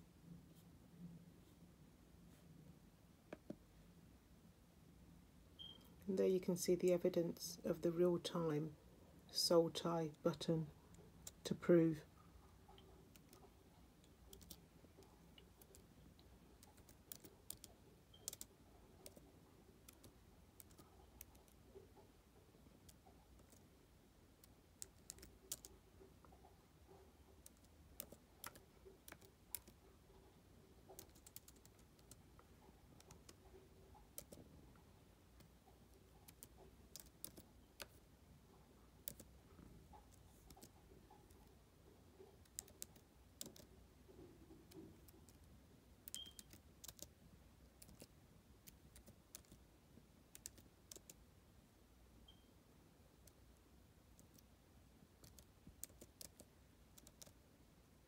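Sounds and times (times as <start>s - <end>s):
faint keyboard keystrokes: 16.6s - 19.2s, 24.4s - 25.8s, 30.9s - 32.2s, 34.0s - 34.5s, 36.2s - 38.0s, 39.0s - 41.5s, 42.4s - 43.7s, 44.6s - 47.1s, 47.8s - 49.6s, 50.3s - 51.2s, 55.2s - 57.4s.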